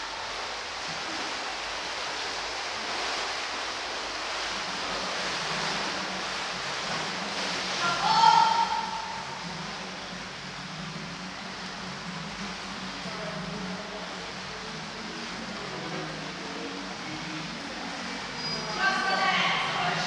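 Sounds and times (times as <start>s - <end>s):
pool water splashing: 0.0s - 20.0s
person calling out: 8.0s - 8.9s.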